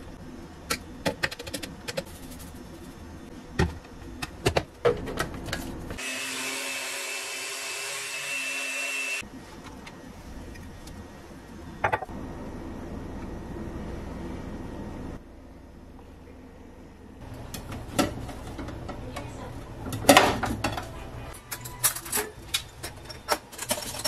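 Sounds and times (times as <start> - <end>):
blender whirring: 6.0 - 9.2.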